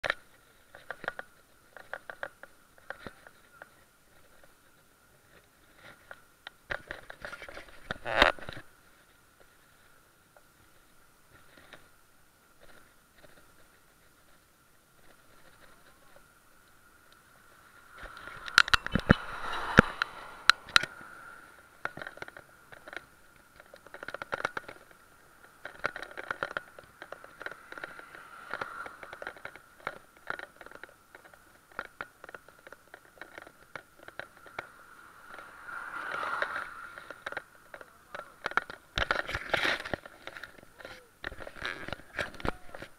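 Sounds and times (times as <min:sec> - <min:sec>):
bike clicks and rattles: 0:00.0 - 0:42.9
wind and road noise: 0:00.0 - 0:42.9.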